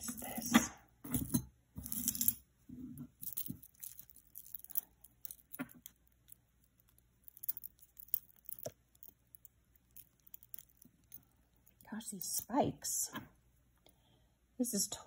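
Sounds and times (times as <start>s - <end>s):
chain links clinking: 1.1s - 2.4s, 3.2s - 11.8s.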